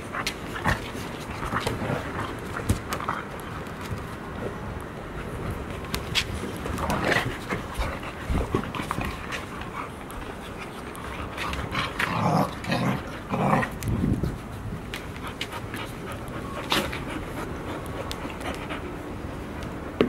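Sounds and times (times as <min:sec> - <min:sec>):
puppies play-wrestling: 0:00.0 - 0:20.0
puppy panting: 0:14.9 - 0:19.8.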